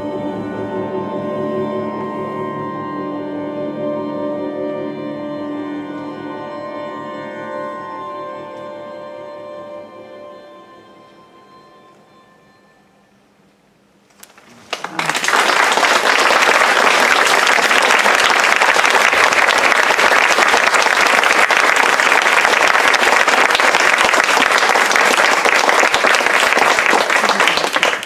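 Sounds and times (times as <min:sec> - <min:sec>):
audience applauding: 0:14.2 - 0:28.0.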